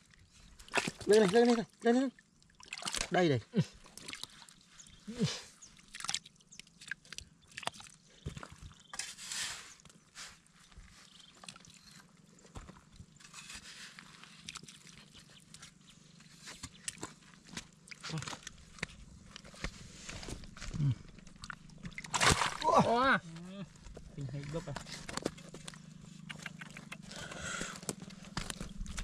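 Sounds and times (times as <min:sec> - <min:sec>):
hands sloshing in muddy water: 0:00.4 - 0:01.7, 0:02.4 - 0:08.8, 0:11.0 - 0:23.0
wet splashes: 0:00.6 - 0:01.7, 0:02.4 - 0:03.2, 0:03.8 - 0:04.6, 0:05.7 - 0:08.0, 0:21.3 - 0:22.9
mud clods thumping: 0:00.7 - 0:01.6, 0:16.5 - 0:23.1.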